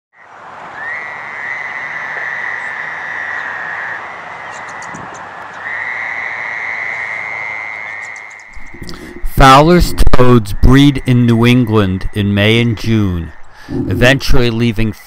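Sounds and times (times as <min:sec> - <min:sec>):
toads calling with trills: 0:00.8 - 0:12.6.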